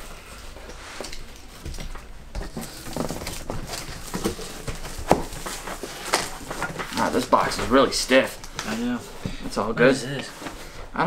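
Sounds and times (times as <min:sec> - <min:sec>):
cardboard flaps rustling: 0:00.0 - 0:11.0
cardboard box being handled: 0:02.3 - 0:10.9.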